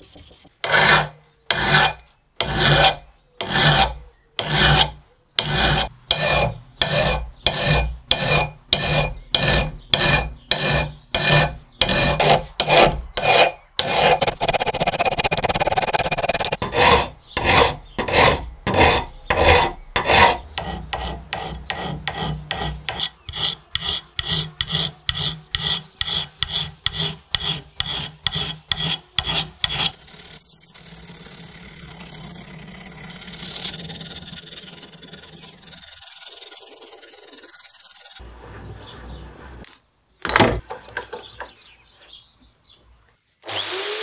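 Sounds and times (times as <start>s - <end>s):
file rasping on steel: 0.6s - 30.0s, 31.0s - 38.2s
abrasive paper rubbing blade: 7.6s - 19.5s, 28.8s - 38.2s.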